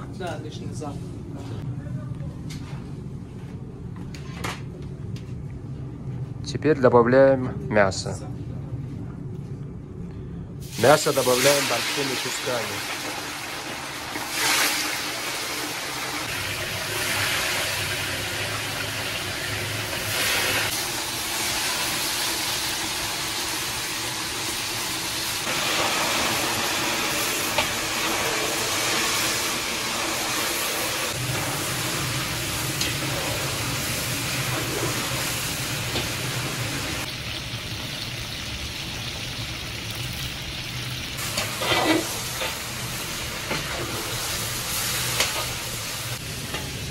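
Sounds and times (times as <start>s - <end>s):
meat sizzling in hot oil: 10.6s - 46.9s.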